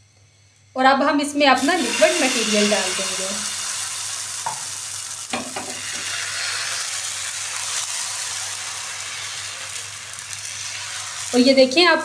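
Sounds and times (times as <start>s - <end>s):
crepe batter sizzling in a pan: 1.5s - 12.0s.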